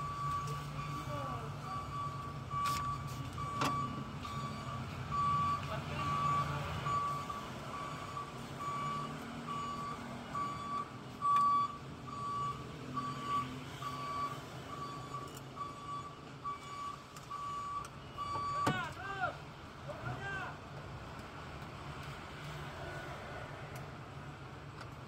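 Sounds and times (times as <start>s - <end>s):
reversing alarm beeping: 0.0s - 19.0s.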